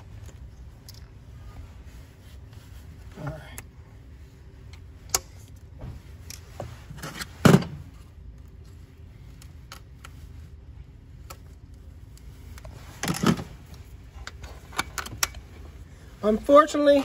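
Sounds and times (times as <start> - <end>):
hose clamps clicking and rattling: 14.2 - 15.5.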